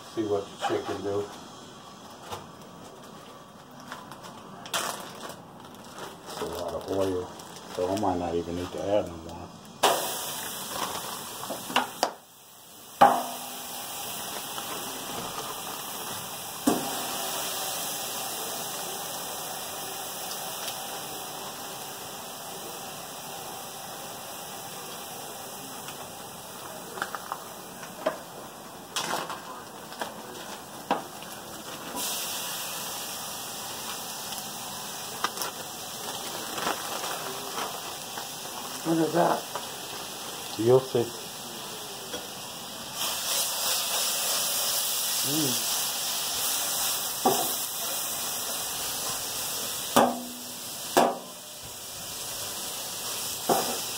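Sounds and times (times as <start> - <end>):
food sizzling in hot oil: 9.6 - 53.9.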